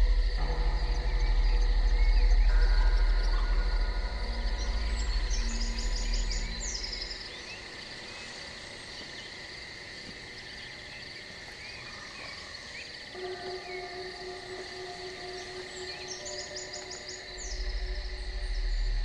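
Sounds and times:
deep low music drone: 0:00.0 - 0:07.6, 0:13.1 - 0:19.0
insects buzzing: 0:00.0 - 0:19.0
birds chirping: 0:00.1 - 0:08.4, 0:12.2 - 0:19.0.

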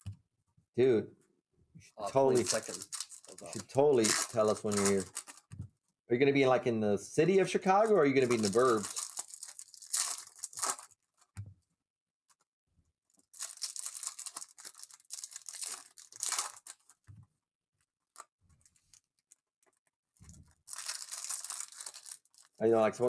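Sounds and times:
foil wrapper tearing and crinkling: 0:02.2 - 0:05.5, 0:07.8 - 0:11.0, 0:13.2 - 0:17.1, 0:20.6 - 0:23.0.

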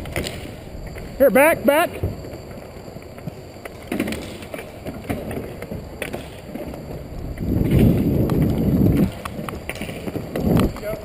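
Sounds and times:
ice skating noise: 0:00.0 - 0:11.0
wind on microphone: 0:06.9 - 0:11.0.

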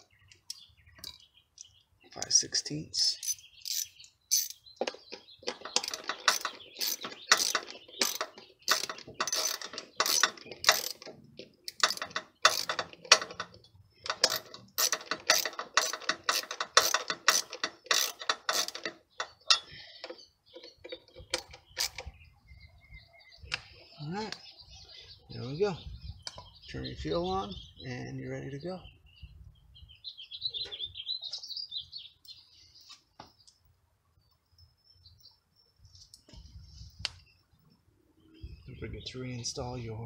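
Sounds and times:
ratchet wrench clicking: 0:03.2 - 0:04.6, 0:05.8 - 0:11.1, 0:11.7 - 0:13.5, 0:14.1 - 0:19.7.

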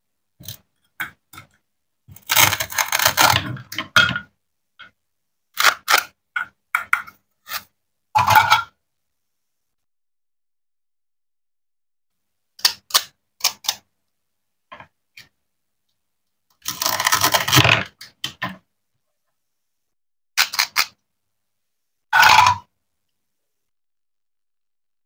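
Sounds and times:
plastic toy knife cutting scratchily: 0:02.2 - 0:03.4, 0:05.6 - 0:06.1, 0:16.6 - 0:17.6, 0:20.4 - 0:21.0.

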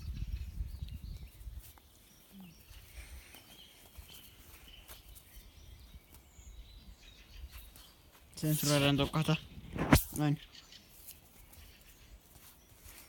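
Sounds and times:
wind rumble on microphone: 0:00.0 - 0:01.8, 0:08.7 - 0:10.3
distant birds chirping: 0:00.0 - 0:13.0.

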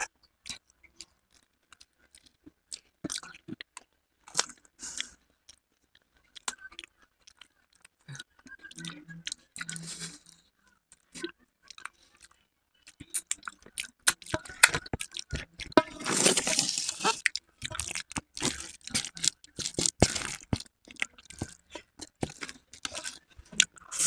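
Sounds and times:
mouths chewing: 0:11.2 - 0:24.0
crisp shells crunching: 0:16.0 - 0:20.7.

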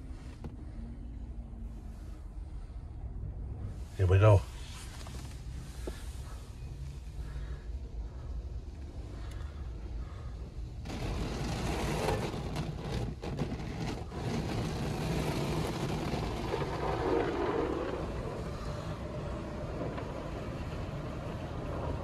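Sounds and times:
car wash spraying water: 0:09.7 - 0:22.0.

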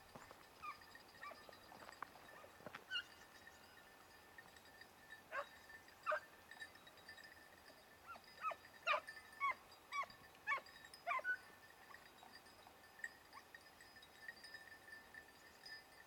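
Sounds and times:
hounds yelping: 0:00.6 - 0:01.6, 0:02.3 - 0:03.8, 0:05.3 - 0:06.3, 0:08.0 - 0:11.5.

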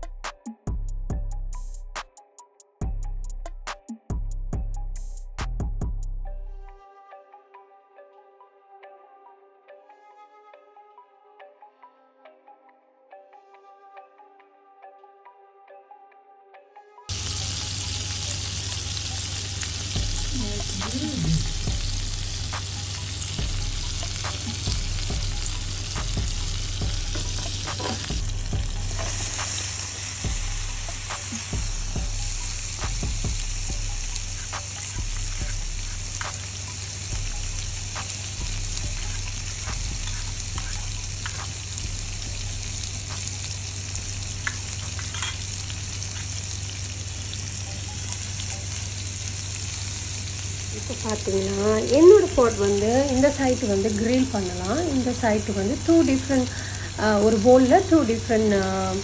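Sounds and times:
food sizzling in oil: 0:17.1 - 0:59.0.

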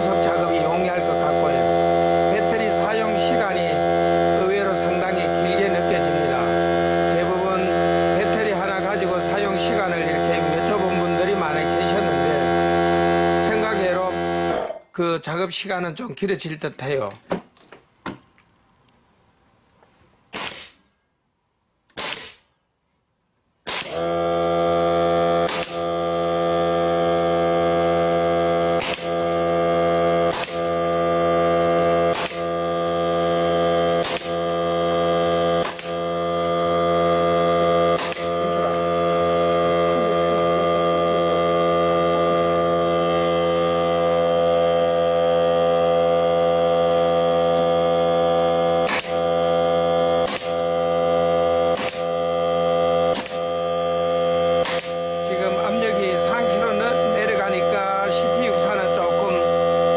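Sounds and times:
air compressor motor humming: 0:00.0 - 0:14.8, 0:23.7 - 0:59.9
pneumatic nailer firing: 0:01.3 - 0:14.8, 0:20.3 - 0:21.0, 0:21.9 - 0:22.6, 0:23.6 - 0:55.3.

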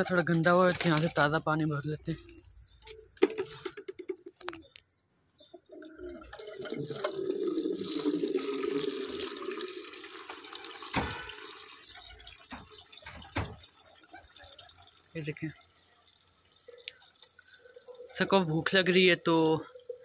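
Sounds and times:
tap water running into bucket: 0:06.1 - 0:20.0.

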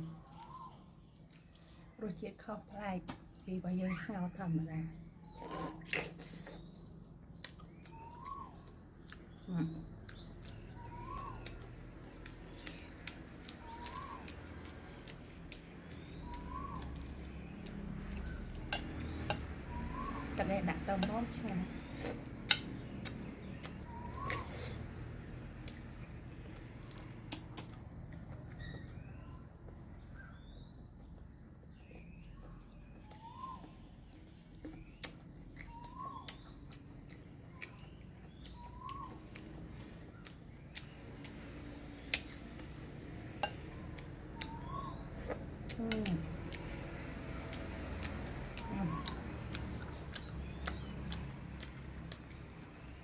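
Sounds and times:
bird calling: 0:00.0 - 0:01.8, 0:07.6 - 0:15.1, 0:15.7 - 0:22.2, 0:23.0 - 0:24.8, 0:31.9 - 0:40.9, 0:43.7 - 0:46.3
bird chirps: 0:00.0 - 0:02.5, 0:03.3 - 0:24.9, 0:25.6 - 0:46.8, 0:47.4 - 0:53.0
soft clicks of chewing: 0:00.2 - 0:02.0, 0:05.4 - 0:20.2, 0:25.6 - 0:53.0
bird whistle: 0:00.3 - 0:00.9, 0:07.9 - 0:08.6, 0:10.7 - 0:11.6, 0:16.2 - 0:17.1, 0:19.7 - 0:20.4, 0:23.9 - 0:24.8, 0:33.1 - 0:33.9, 0:35.7 - 0:36.4, 0:44.4 - 0:45.1.

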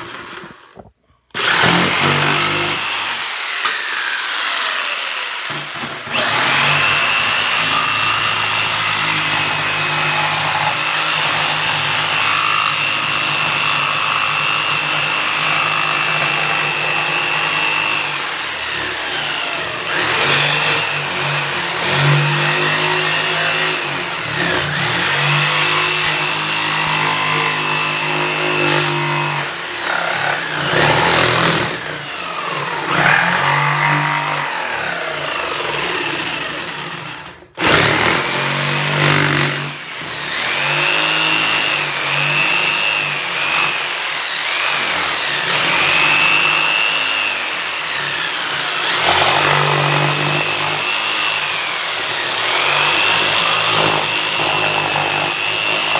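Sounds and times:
jigsaw cutting plywood: 0:00.0 - 0:55.9.

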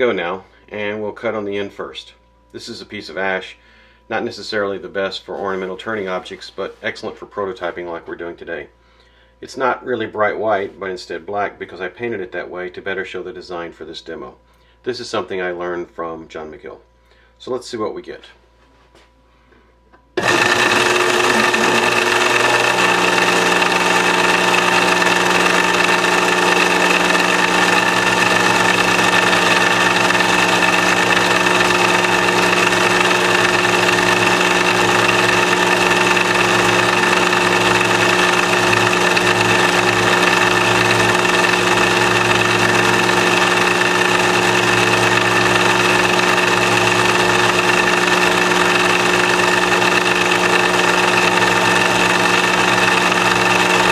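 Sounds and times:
carving bit cutting wood: 0:20.2 - 0:53.9
drive motor whining: 0:20.2 - 0:53.9.

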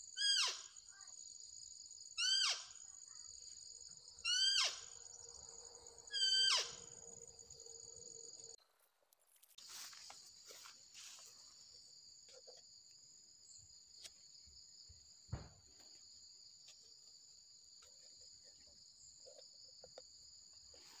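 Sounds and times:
high-pitched insect buzz: 0:04.2 - 0:08.6
short thump: 0:15.3 - 0:15.9.

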